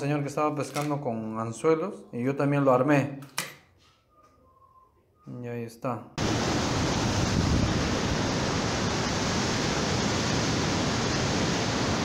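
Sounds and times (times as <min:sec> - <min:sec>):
surf breaking on rocks: 0:06.2 - 0:12.0
wind buffeting microphone: 0:06.2 - 0:12.0.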